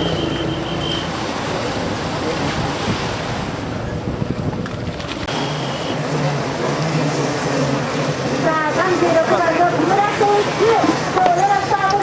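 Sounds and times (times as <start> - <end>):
watercraft engines running: 0.0 - 12.0
waterfront noise: 0.0 - 12.0
wind buffeting microphone: 1.3 - 5.3.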